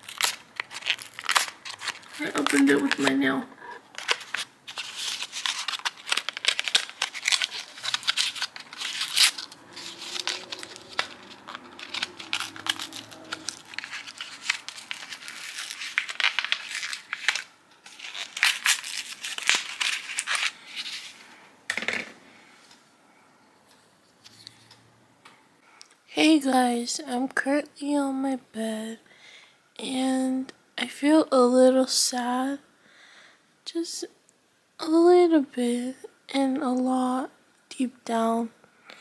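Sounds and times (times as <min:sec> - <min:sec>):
plastic packaging crinkling and tearing: 0:00.0 - 0:21.2.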